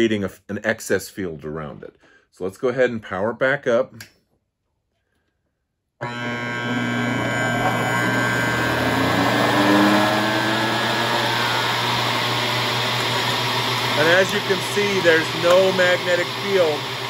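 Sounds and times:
transformer humming with buzz: 6.0s - 17.0s.

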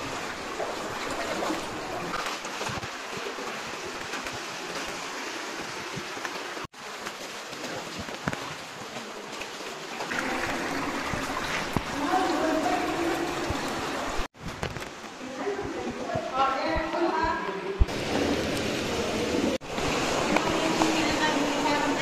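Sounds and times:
feet splashing in water: 0.0s - 14.5s
stream water rushing: 0.0s - 22.0s.

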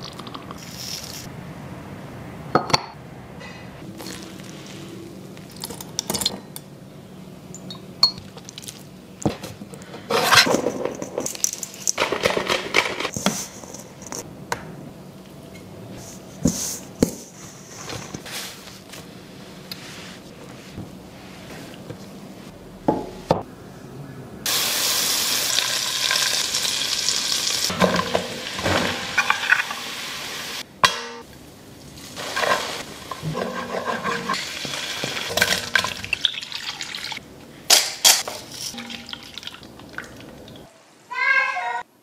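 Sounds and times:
utensils clinking on bowls: 7.5s - 8.5s, 38.0s - 40.2s.

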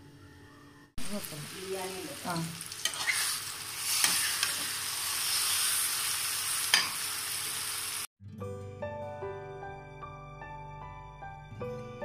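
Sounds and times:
food sizzling in a frying pan: 1.0s - 8.1s
soft instrumental music: 8.2s - 12.0s.

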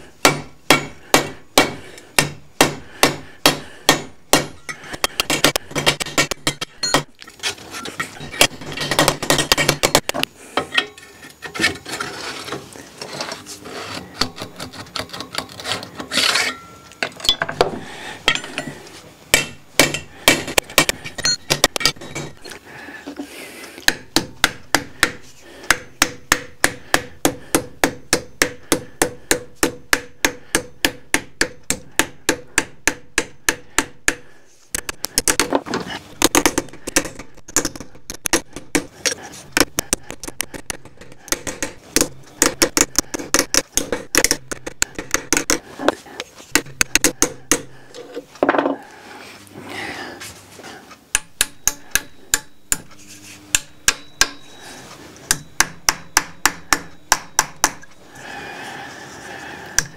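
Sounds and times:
hammer striking steel tube: 0.2s - 7.0s, 19.3s - 22.2s, 23.9s - 34.2s, 51.1s - 52.9s, 53.5s - 54.6s, 55.3s - 57.9s.

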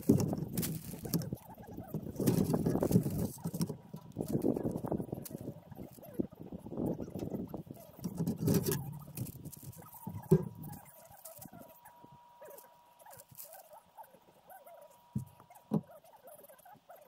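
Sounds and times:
faint steady tone: 0.0s - 17.0s
plastic pipe knocks and rustling: 8.0s - 10.7s.

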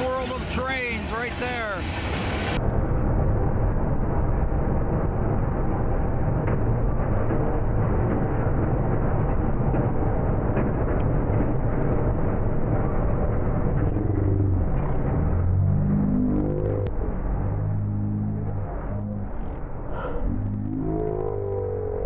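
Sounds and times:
freight train rumbling past: 0.0s - 20.3s
slowed-down wavering pitched sound: 2.1s - 22.0s.

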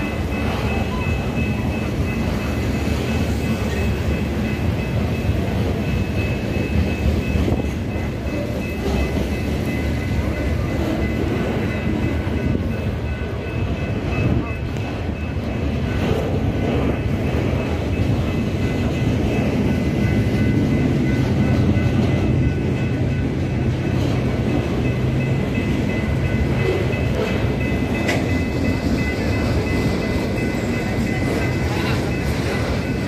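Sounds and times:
high-pitched ringing: 0.0s - 16.1s
freight train wagons rumbling: 0.0s - 33.0s.

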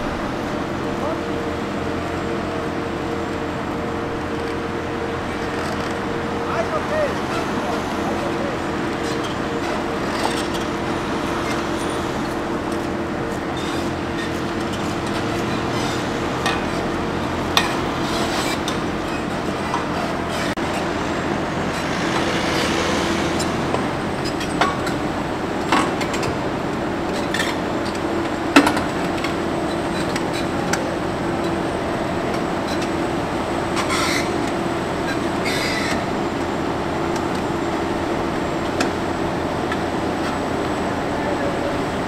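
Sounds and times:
machine humming: 0.0s - 14.1s.

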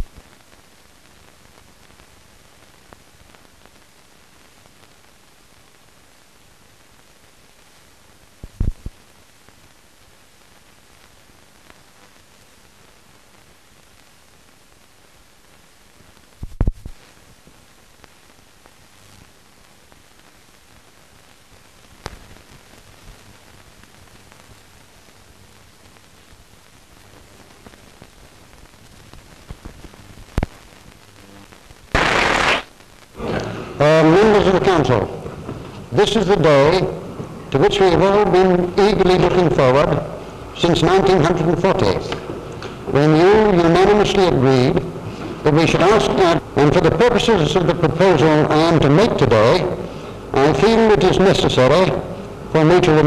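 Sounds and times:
film soundtrack hiss: 0.0s - 53.0s
loud burst of noise: 31.8s - 35.2s
sharp pops: 31.9s - 32.8s.

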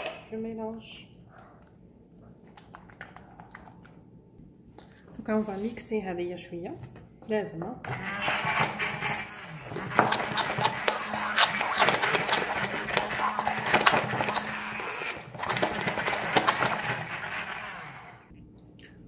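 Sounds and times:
immersion blender running: 7.9s - 18.3s.

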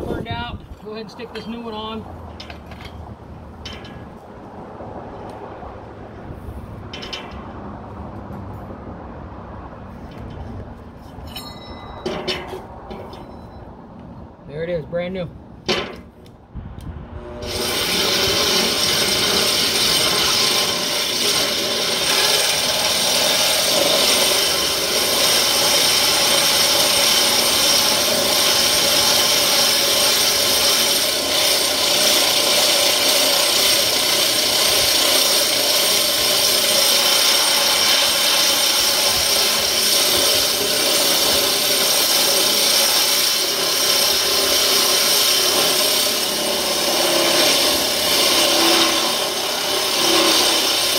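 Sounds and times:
angle grinder grinding metal: 17.2s - 50.9s.

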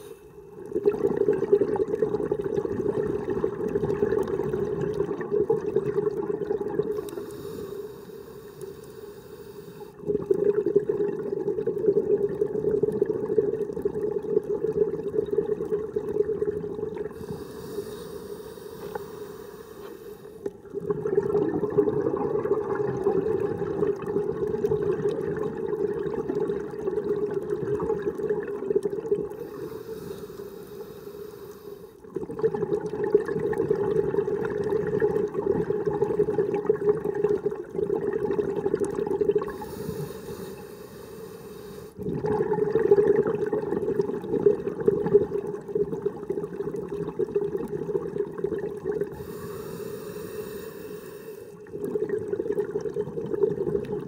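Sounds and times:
bubbling exhalation underwater: 0.6s - 7.3s, 10.0s - 17.5s, 20.5s - 29.7s, 32.0s - 40.4s, 42.0s - 50.0s, 51.6s - 54.0s
regulator inhalation hiss: 7.0s - 10.0s, 17.2s - 20.5s, 29.4s - 32.0s, 39.5s - 42.0s, 49.2s - 51.6s.

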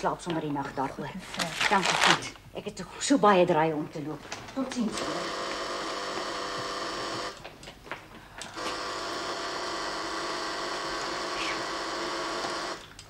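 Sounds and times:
switchboard call buzzer buzzing: 4.9s - 7.4s, 8.6s - 12.8s.

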